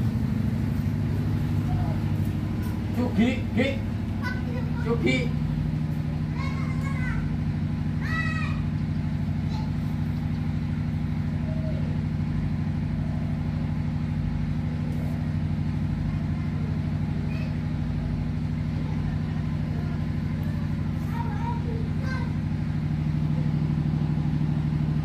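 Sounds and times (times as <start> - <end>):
engine droning steadily: 0.0 - 25.0.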